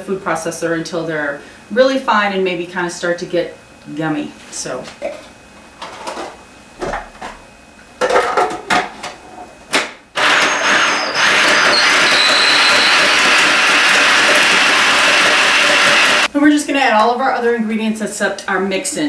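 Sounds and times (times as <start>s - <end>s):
food processor motor chopping: 9.8s - 16.3s.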